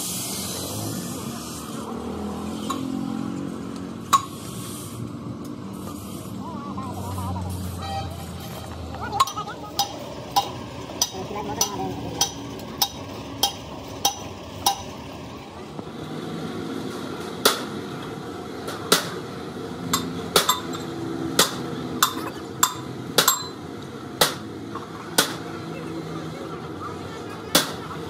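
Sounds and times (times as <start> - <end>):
hammer striking metal: 9.2 - 15.0, 19.9 - 23.6.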